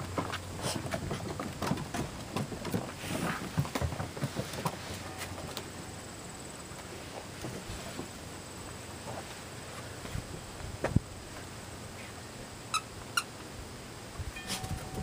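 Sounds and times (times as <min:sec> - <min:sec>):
paws tapping on wooden boards: 0:00.0 - 0:05.7.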